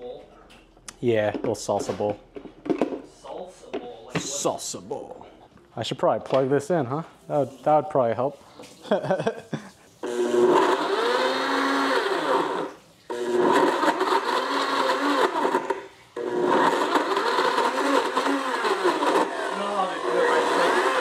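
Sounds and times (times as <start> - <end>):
electric blender running: 10.0 - 21.0.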